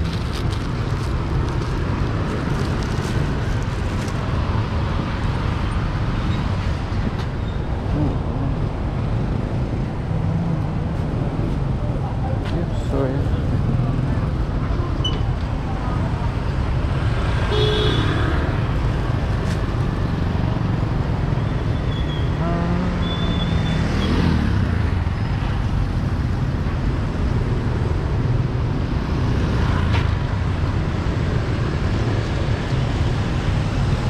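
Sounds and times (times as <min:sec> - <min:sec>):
street traffic: 0:00.0 - 0:34.0.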